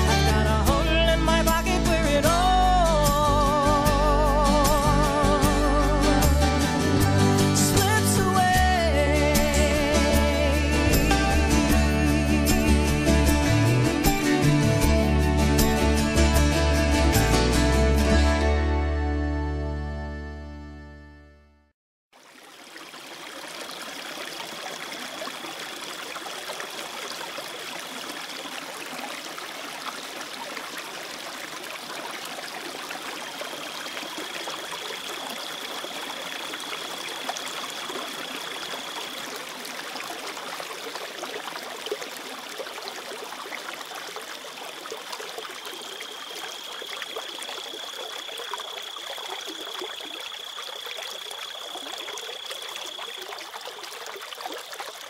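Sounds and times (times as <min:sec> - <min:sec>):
shallow river water rushing: 0:22.2 - 0:55.0.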